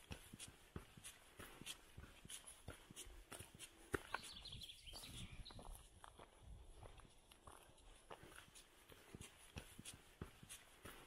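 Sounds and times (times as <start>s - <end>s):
faint woodland ambience: 0.0s - 11.0s
high twittering bird call: 4.1s - 5.7s.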